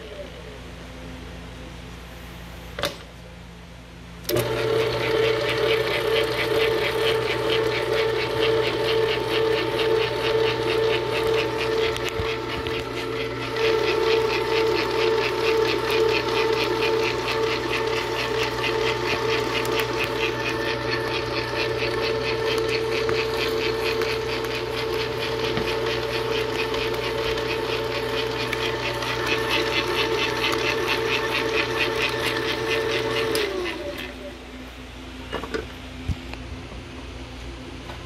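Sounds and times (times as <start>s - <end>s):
stand mixer motor humming: 4.3s - 34.4s.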